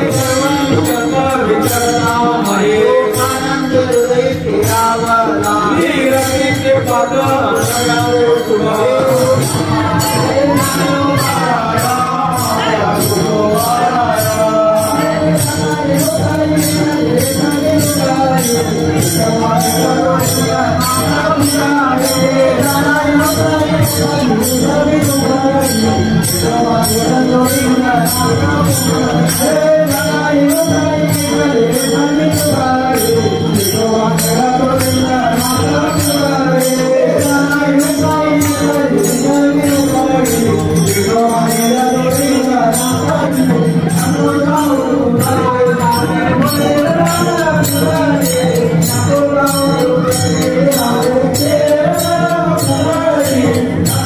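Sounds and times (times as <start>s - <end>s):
hand cymbals beating fast: 0.0s - 54.0s
voices singing a chant: 0.0s - 54.0s.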